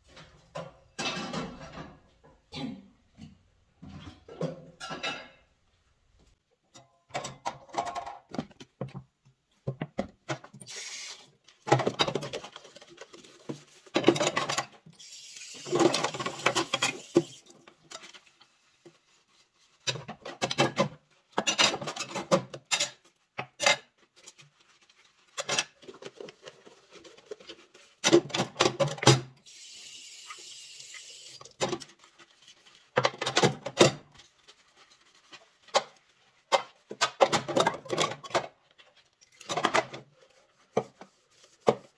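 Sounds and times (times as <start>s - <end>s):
dishes clattering in a sink: 0.1s - 5.5s, 6.7s - 9.0s, 13.9s - 14.8s, 15.7s - 17.4s, 19.8s - 24.0s, 33.0s - 34.1s, 36.5s - 38.6s.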